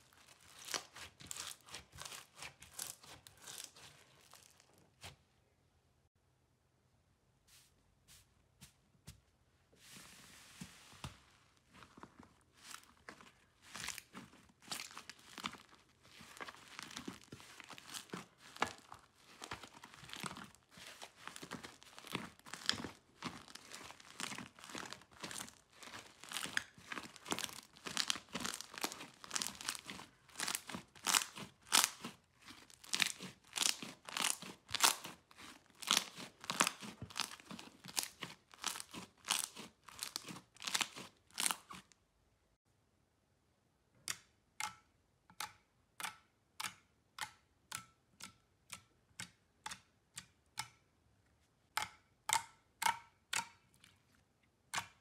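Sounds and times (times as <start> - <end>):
slime squeezed by hand crackling: 0.1 - 5.1, 12.6 - 41.8.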